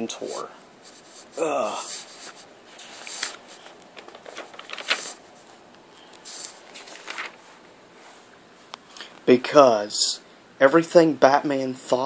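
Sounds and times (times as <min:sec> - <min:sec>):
paper pages rustling: 0:00.8 - 0:08.2.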